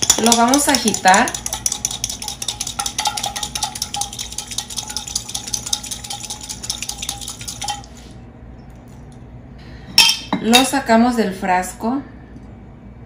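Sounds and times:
egg rattling in glass jar: 0.0 - 8.0.

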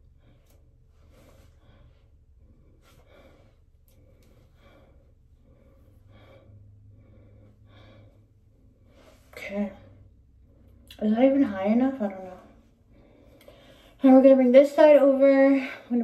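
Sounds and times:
heavy breathing: 0.0 - 10.8.

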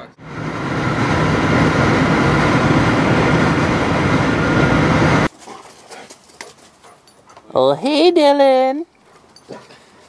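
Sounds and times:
road and engine noise in car: 0.0 - 5.3.

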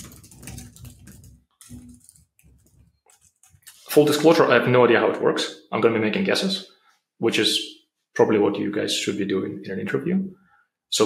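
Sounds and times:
typing on keyboard: 0.0 - 3.7.

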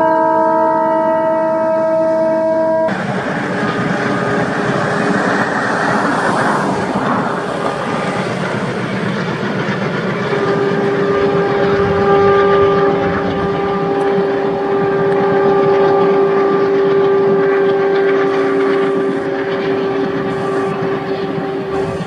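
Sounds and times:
locomotive horn blast: 0.0 - 5.6, 10.2 - 22.0
passenger train rumbling: 0.0 - 22.0.

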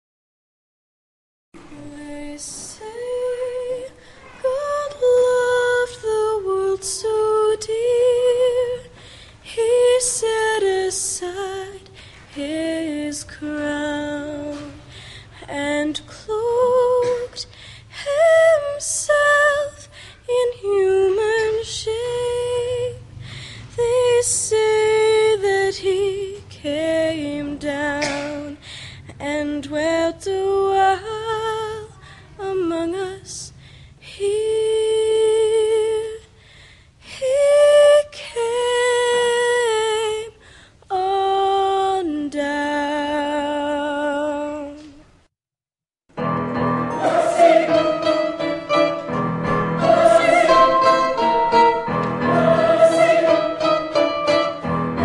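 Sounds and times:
female choir singing: 46.8 - 54.7.

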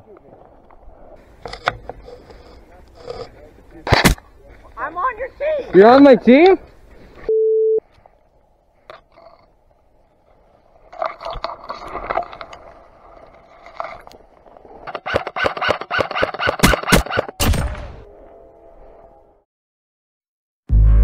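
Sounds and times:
airsoft rifle rapid shots: 15.0 - 17.4.

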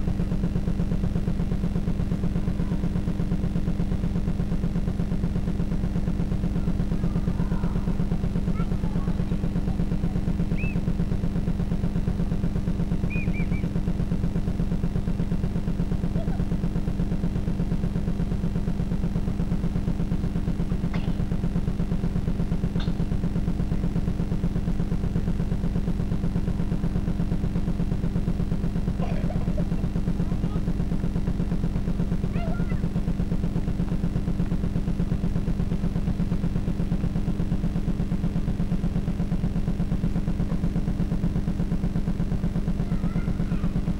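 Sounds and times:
low buzzing hum: 0.0 - 43.9
faint high chirps: 10.5 - 10.9, 13.0 - 13.7.

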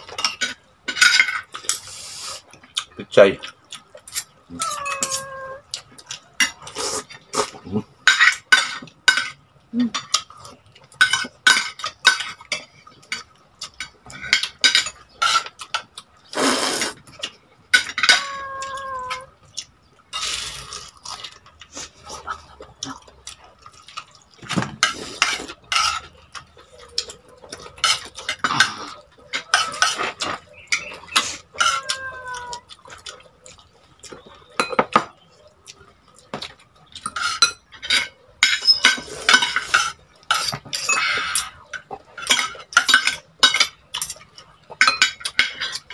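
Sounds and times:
cutlery clinking on a plate: 0.0 - 1.9, 4.0 - 6.8, 8.0 - 9.4, 10.9 - 15.9, 17.2 - 19.3, 23.8 - 32.6, 34.1 - 35.2, 36.4 - 45.9
close-up eating sounds: 0.0 - 45.9.

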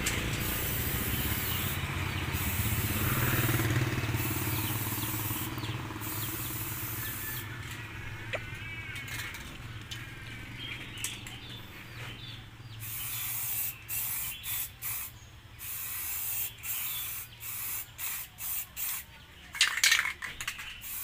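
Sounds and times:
spray paint can hissing: 0.0 - 7.5, 12.8 - 21.0.

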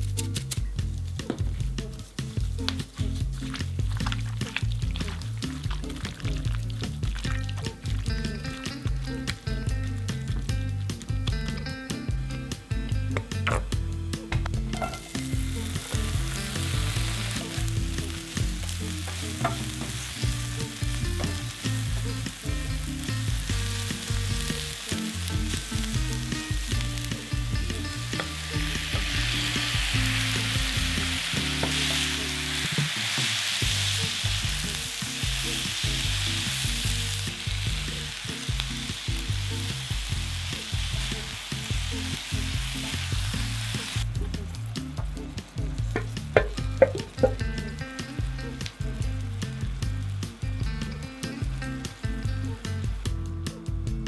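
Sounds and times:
food sizzling in a skillet: 0.0 - 13.4, 14.1 - 53.8
wooden spatulas stirring food: 1.7 - 9.4, 14.7 - 32.7.

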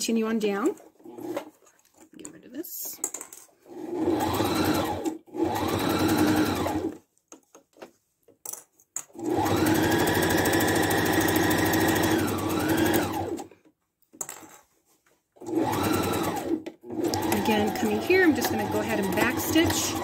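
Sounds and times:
sewing machine whining: 3.7 - 7.0, 9.2 - 13.5, 15.4 - 20.0.

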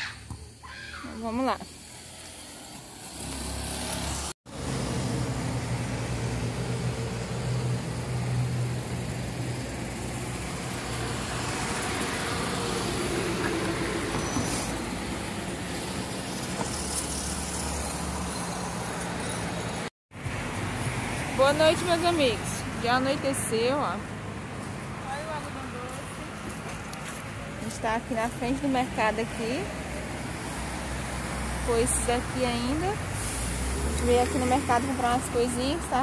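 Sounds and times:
cars driving past: 1.6 - 36.0.

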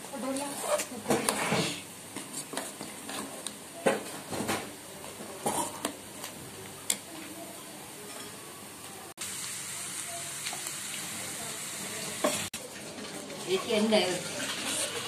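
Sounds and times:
onions sizzling in hot oil: 8.6 - 15.0.

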